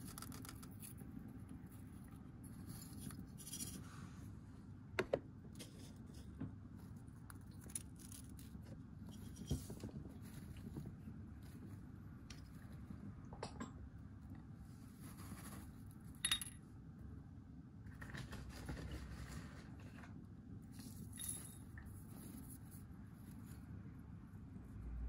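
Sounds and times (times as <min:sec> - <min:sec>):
hamster rustling in bedding: 0:14.7 - 0:16.1.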